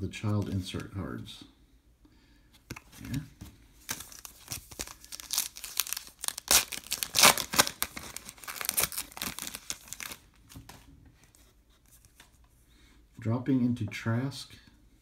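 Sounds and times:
foil wrapper crinkling: 0:03.8 - 0:10.4.

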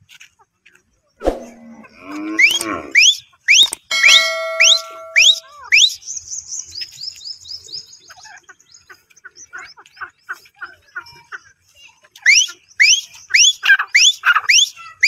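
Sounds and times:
bird whistling calls: 0:02.4 - 0:06.2.

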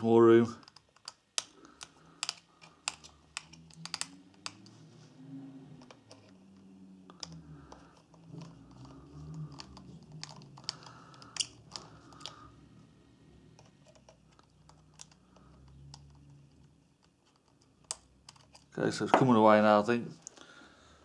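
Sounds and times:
screwdriver clicks and scrapes: 0:00.6 - 0:04.8.

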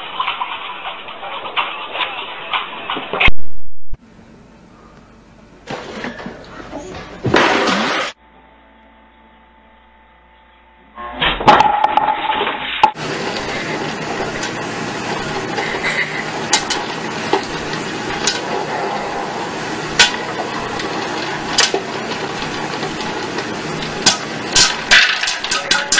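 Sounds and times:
popcorn popper sizzling: 0:11.5 - 0:25.9
popcorn kernels popping: 0:12.9 - 0:18.7, 0:19.4 - 0:25.9.

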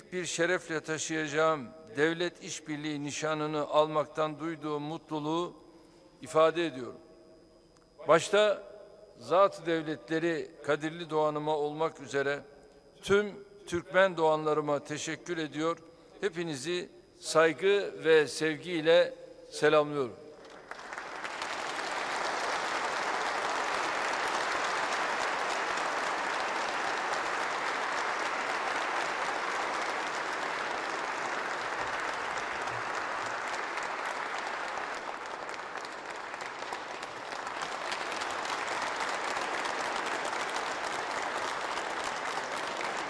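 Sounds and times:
audience applauding: 0:20.4 - 0:43.0.

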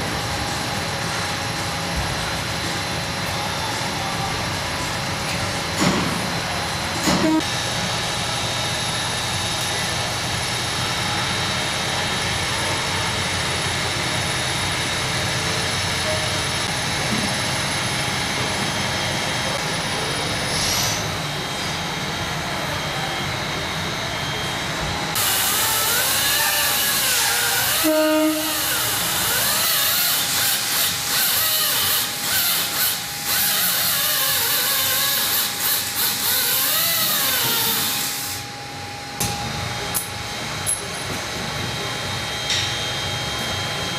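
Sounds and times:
workshop mechanical hum: 0:00.0 - 0:43.9
angle grinder cutting metal: 0:25.2 - 0:38.4.

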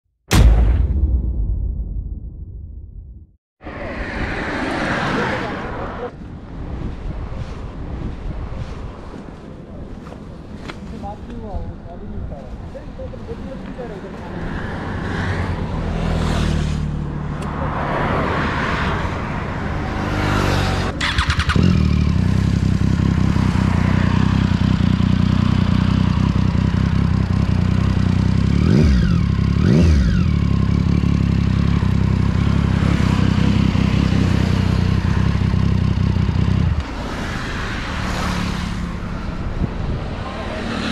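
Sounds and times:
motorcycle engine idling and revving: 0:13.3 - 0:17.9, 0:18.8 - 0:40.9.

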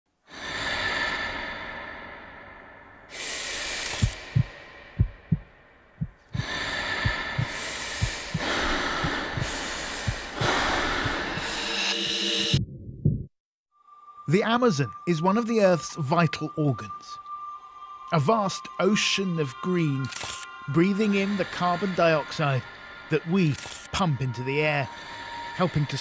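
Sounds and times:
deep breaths: 0:00.2 - 0:11.9, 0:24.8 - 0:26.0
heartbeat thudding: 0:04.0 - 0:11.5, 0:12.5 - 0:13.4.

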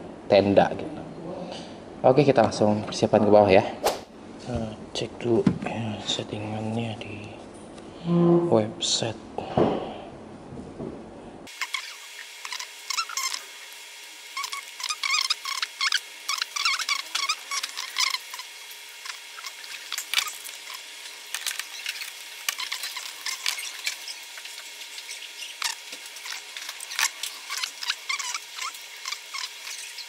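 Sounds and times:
squeaky chirps: 0:11.7 - 0:13.4, 0:14.4 - 0:30.0.

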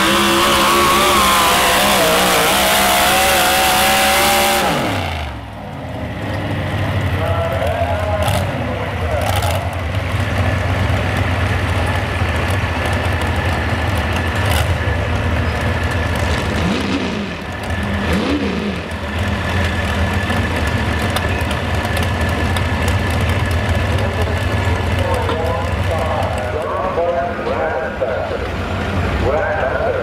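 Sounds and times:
engine throttle blips: 0:00.0 - 0:30.0
supercharged engine idling: 0:00.0 - 0:30.0.

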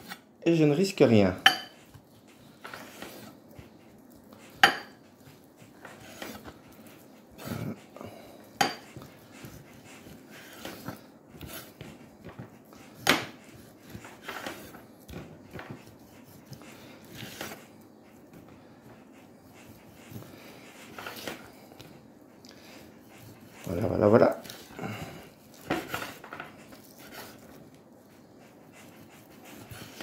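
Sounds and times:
knife slicing raw meat: 0:08.5 - 0:17.7, 0:25.4 - 0:27.5.

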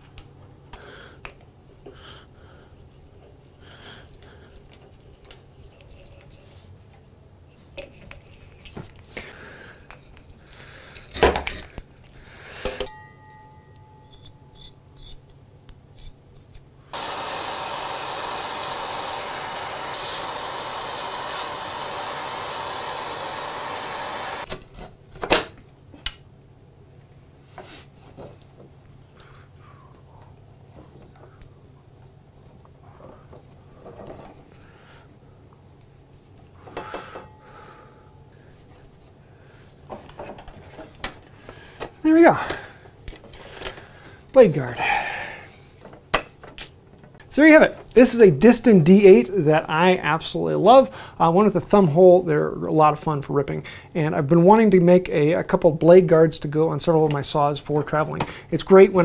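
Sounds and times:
hand drill boring: 0:16.9 - 0:24.5
propane torch hissing: 0:16.9 - 0:24.5.

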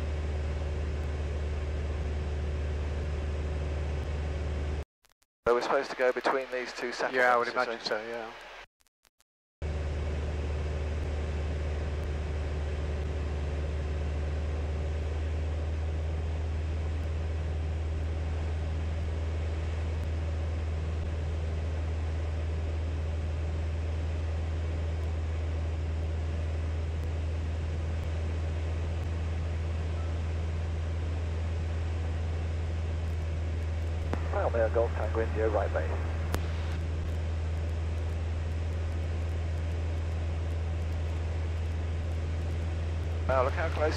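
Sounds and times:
light aircraft engine droning: 0:00.0 - 0:04.8, 0:09.6 - 0:43.9.

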